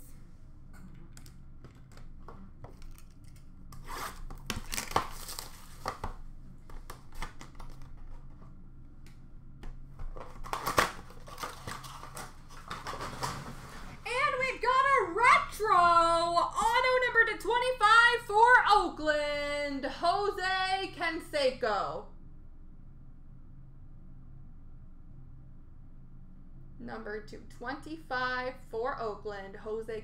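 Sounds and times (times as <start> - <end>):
steady low hum: 0.0 - 30.0
packaging crinkling and tearing: 1.7 - 8.5, 10.0 - 13.3.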